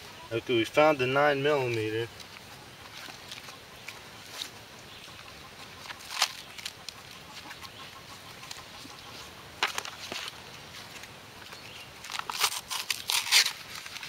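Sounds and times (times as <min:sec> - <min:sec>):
paper pages turned by hand: 0:09.6 - 0:14.0.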